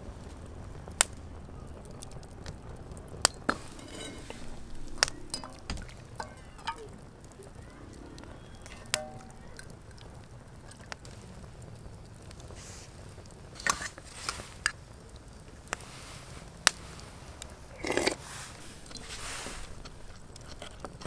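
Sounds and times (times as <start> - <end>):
utensils clinking against pans: 3.5 - 7.0, 8.8 - 9.6.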